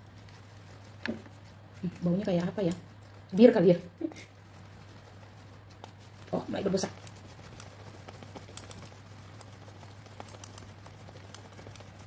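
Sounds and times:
plastic stirrer clicking in beans: 5.8 - 12.0.

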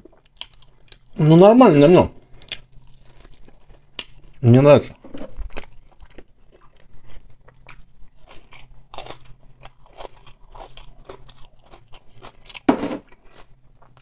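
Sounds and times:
person chewing crunchy salad: 0.0 - 1.2, 2.2 - 14.0.

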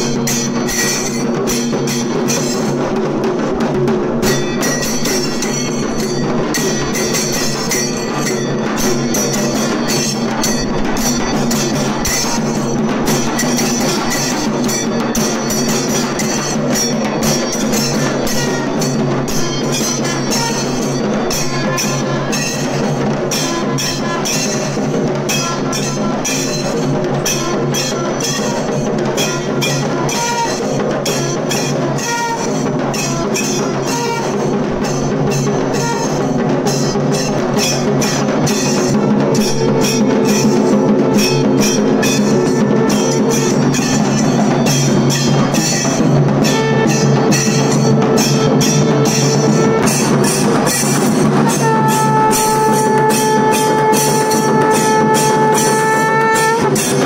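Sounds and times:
fast continuous drumming: 0.0 - 57.0
brass horns blowing held notes: 17.8 - 22.6, 25.3 - 35.0, 35.6 - 36.4, 46.4 - 57.0
conch shell long note: 29.2 - 34.9, 37.6 - 44.2, 46.4 - 57.0.

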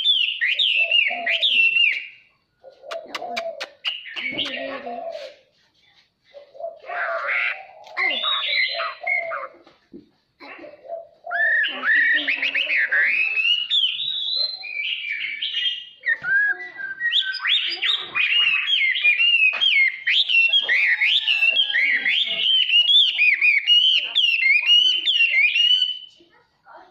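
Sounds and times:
bird singing whistled phrases: 0.0 - 2.3, 3.0 - 4.7, 7.8 - 9.5, 11.3 - 26.2.

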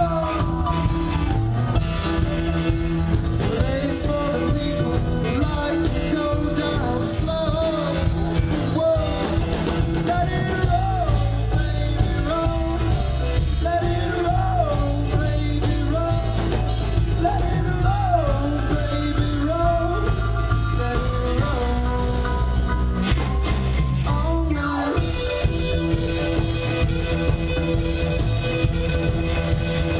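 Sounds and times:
man singing lead vocal: 0.0 - 1.4, 3.1 - 23.1, 24.0 - 25.5
bass guitar: 0.0 - 29.9
drum kit: 0.0 - 29.9
electric guitar: 0.0 - 29.9
keyboard: 0.0 - 29.9.

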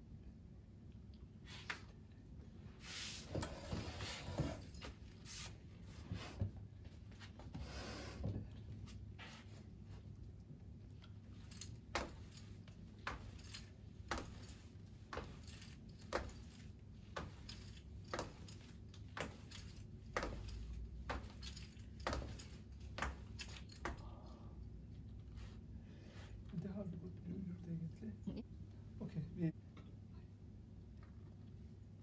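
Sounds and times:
footsteps on hard floor: 13.1 - 24.0.

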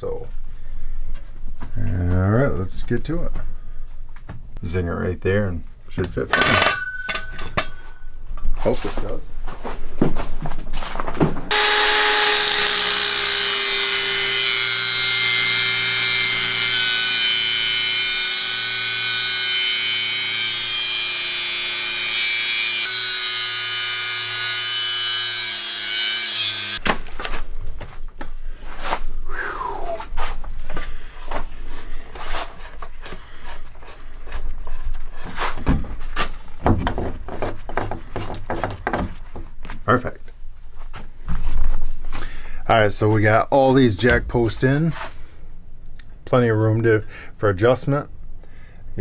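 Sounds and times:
metal knocks and clinks: 6.3 - 8.0
angle grinder cutting steel: 11.5 - 26.8.

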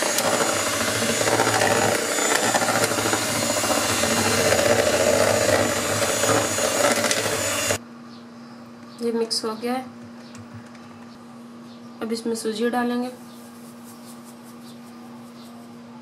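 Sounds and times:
electric hand mixer whirring: 0.0 - 7.8.

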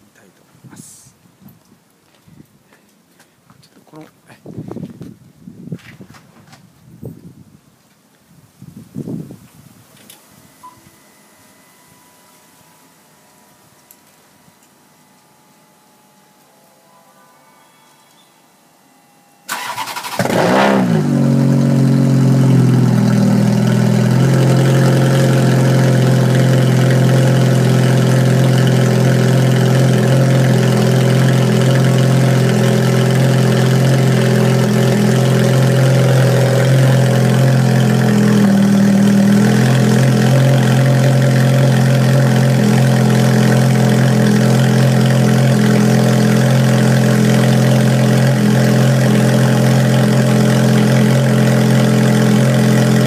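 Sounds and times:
sports car engine idling: 19.4 - 53.0.

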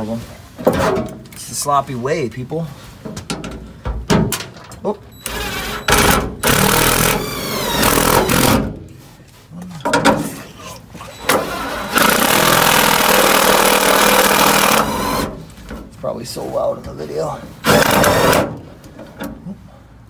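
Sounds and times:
cordless drill driving screws into metal: 5.2 - 8.7, 11.1 - 15.4, 17.6 - 18.6.

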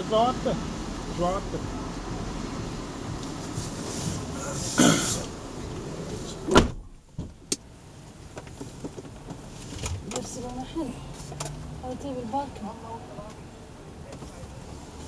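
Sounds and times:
street noise: 0.0 - 15.0
car door slamming: 3.2 - 7.7.

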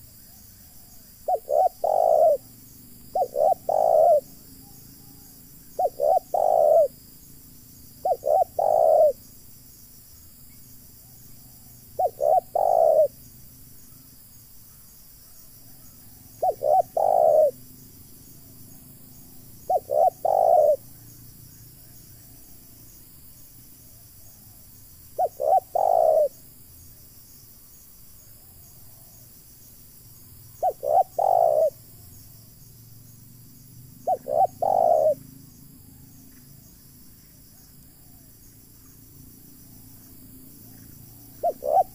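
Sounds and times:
dove cooing: 0.7 - 2.5, 3.1 - 7.0, 8.0 - 9.2, 11.5 - 13.2, 15.8 - 17.6, 19.6 - 20.9, 25.2 - 26.4, 30.6 - 31.8, 34.0 - 35.2, 41.1 - 41.9.

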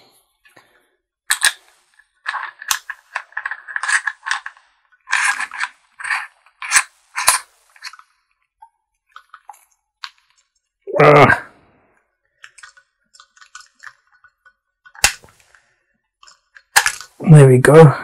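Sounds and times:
metal clicks and scrapes: 1.3 - 8.1.

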